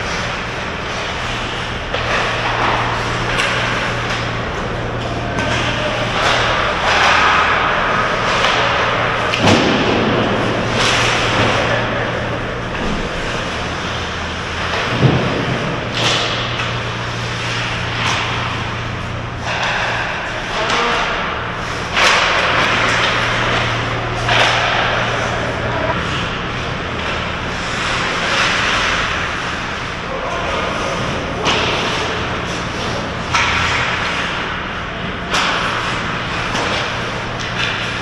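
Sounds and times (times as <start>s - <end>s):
hockey sticks clacking: 0.0s - 38.0s
steady low hum: 0.0s - 38.0s
skate blades scraping ice: 0.1s - 9.4s.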